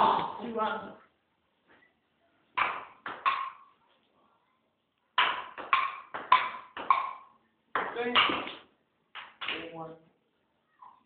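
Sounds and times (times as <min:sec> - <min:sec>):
table tennis ball bouncing: 0:02.6 - 0:03.7, 0:05.2 - 0:09.7.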